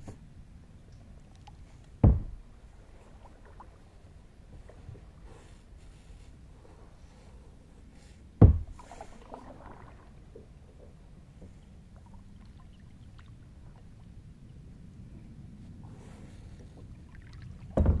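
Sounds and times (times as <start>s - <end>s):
faint low rumble: 0.0s - 18.0s
paddle thump: 2.0s - 2.5s, 8.4s - 9.0s, 17.7s - 18.0s.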